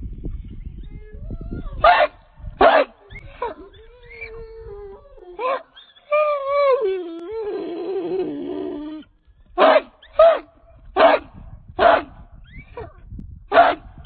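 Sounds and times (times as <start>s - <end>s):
dog howling: 0.9s - 9.1s
dog barking: 1.8s - 3.6s, 9.6s - 12.2s, 13.5s - 13.9s.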